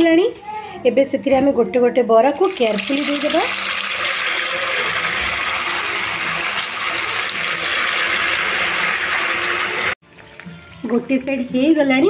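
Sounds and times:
deep-frying sizzle with crackling: 2.4s - 10.0s.

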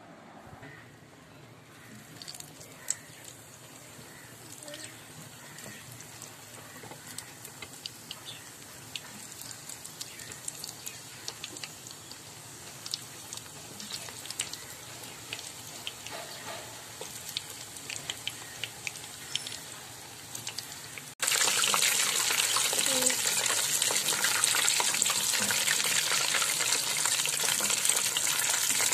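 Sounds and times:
food deep-frying in hot oil: 1.7s - 28.9s
oil crackling pops: 5.5s - 19.6s.

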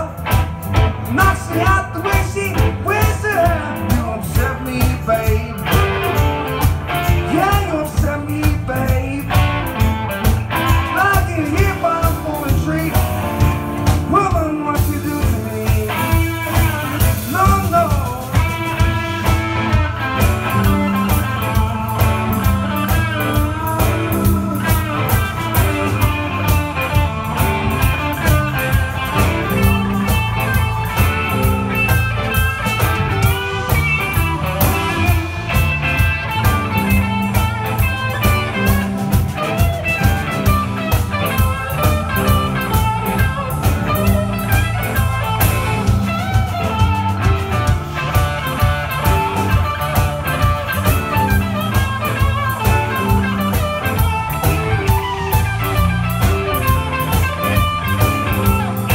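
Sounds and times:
bass guitar: 0.0s - 58.9s
drum kit steady beat: 0.0s - 58.9s
keyboard: 0.0s - 58.9s
lead electric guitar with bends: 0.0s - 58.9s.

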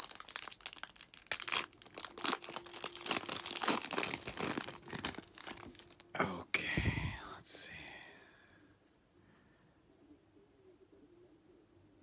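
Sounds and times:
foil wrapper tearing and crinkling: 0.0s - 6.0s.

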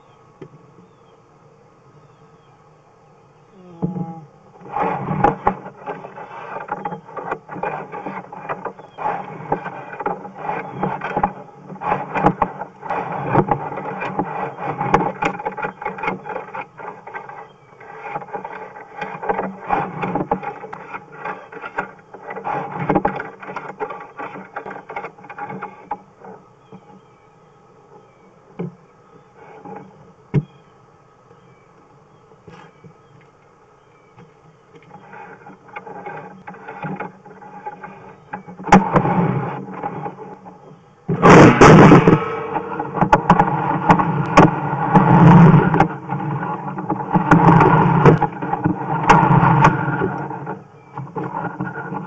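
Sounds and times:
cable rattling and scraping in pipe: 4.6s - 27.0s, 34.8s - 52.0s.

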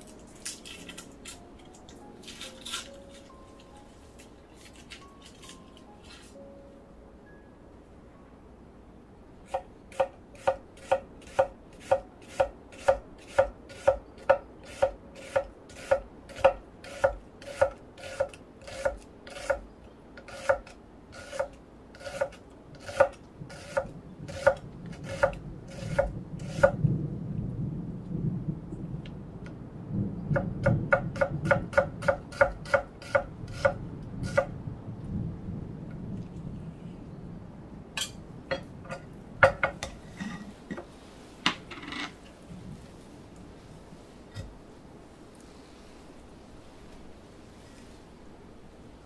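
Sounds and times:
knife slicing onion on wooden board: 9.5s - 19.6s, 20.2s - 26.8s, 30.9s - 34.4s
low rustling: 38.2s - 49.0s.

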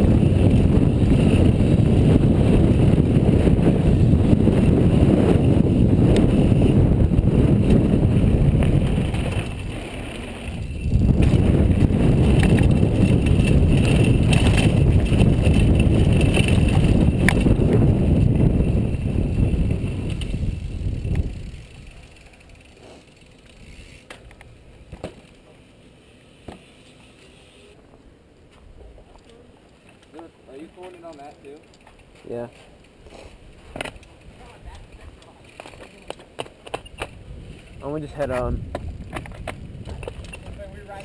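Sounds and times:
wind buffeting camera: 0.0s - 22.6s, 33.4s - 41.0s
bike rattling over dirt trail: 0.0s - 27.5s, 29.0s - 41.0s.

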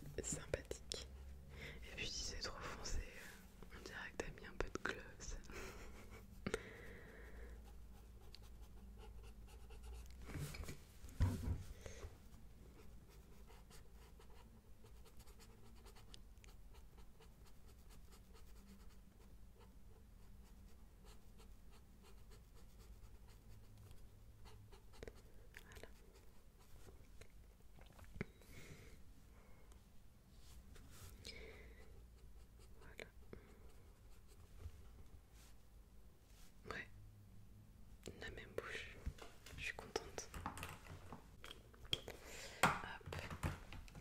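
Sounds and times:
pencil scratching on paper: 7.6s - 10.8s, 12.8s - 26.9s
bump and rustle of handling: 10.3s - 11.7s.

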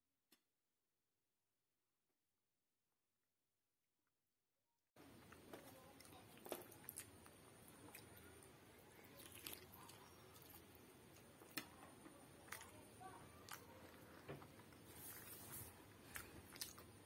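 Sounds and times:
fingers squishing food: 5.0s - 17.0s
person chewing: 5.2s - 11.8s, 12.4s - 17.0s.

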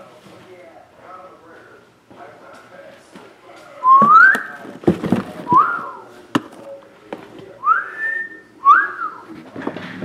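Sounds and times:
person whistling: 3.8s - 4.5s, 5.5s - 6.0s, 7.6s - 9.2s
cardboard boxes knocking: 4.0s - 5.8s.

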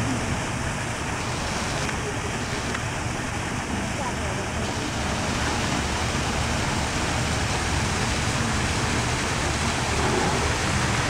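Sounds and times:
waterfall splashing into pool: 1.0s - 11.0s.

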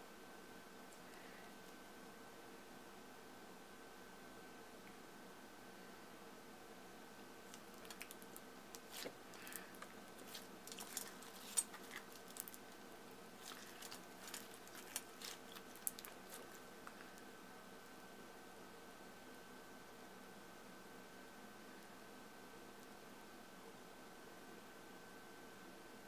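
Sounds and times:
crunchy slime squeezed by hand: 7.7s - 12.6s, 13.4s - 16.6s.

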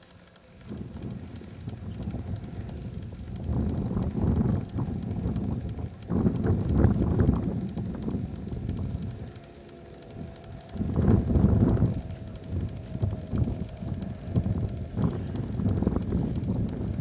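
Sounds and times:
wind buffeting microphone: 0.5s - 17.0s.

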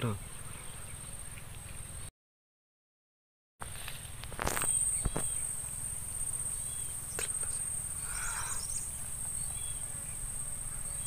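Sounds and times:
high-pitched insect drone: 4.4s - 11.0s
faint chirp: 4.6s - 11.0s.

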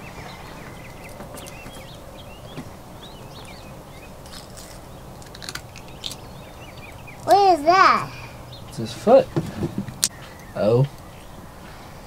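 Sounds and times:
outdoor background hum: 0.0s - 12.0s
small birds chirping: 0.0s - 12.0s.

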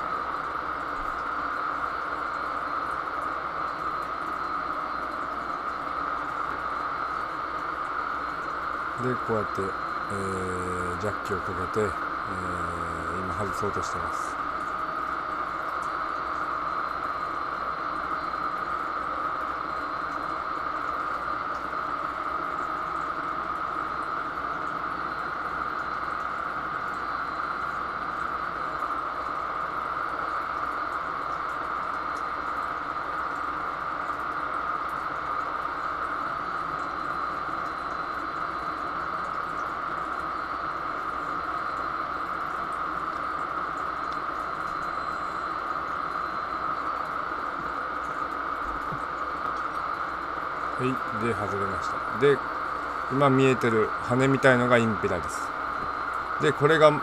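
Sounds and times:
low machinery hum: 0.0s - 57.0s.

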